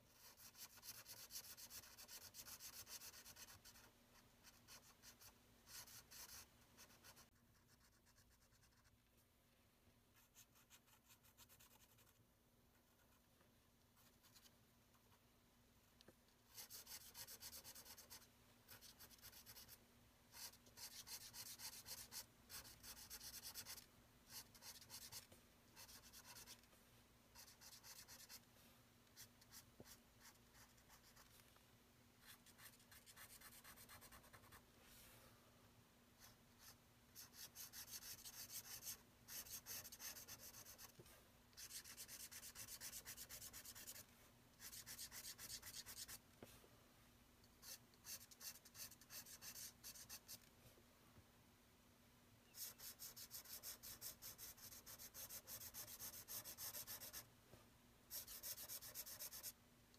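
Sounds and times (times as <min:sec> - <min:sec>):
marker pen scratching on paper: 0:00.1 - 0:08.9, 0:16.5 - 0:26.6, 0:27.4 - 0:28.4, 0:29.2 - 0:31.3, 0:36.2 - 0:41.0, 0:41.6 - 0:44.0, 0:44.6 - 0:46.2, 0:47.6 - 0:50.5, 0:52.5 - 0:57.3, 0:58.1 - 0:59.5.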